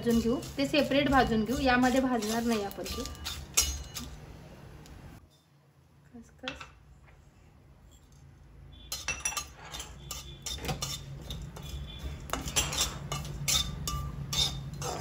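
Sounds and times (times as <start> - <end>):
metal spatula scraping metal pan: 0.0 - 4.1, 8.8 - 15.0.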